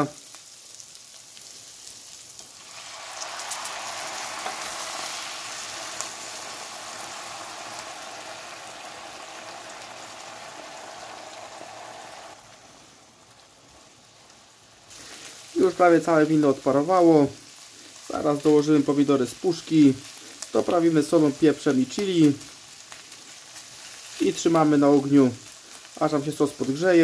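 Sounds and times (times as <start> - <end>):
wine sizzling in frying pan: 0.0 - 27.0
spatula stirring pan: 0.8 - 12.6, 22.4 - 24.4.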